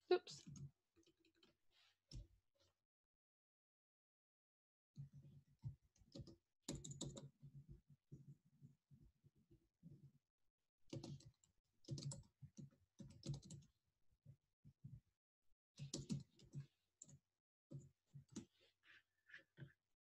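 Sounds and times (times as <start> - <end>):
typing on computer keyboard: 6.1 - 7.3, 11.9 - 12.3, 13.0 - 13.6, 15.8 - 16.6.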